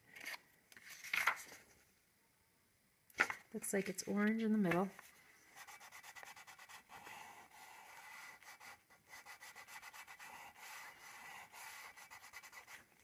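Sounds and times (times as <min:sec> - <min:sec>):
pastel scratching on paper: 0:05.6 - 0:12.9.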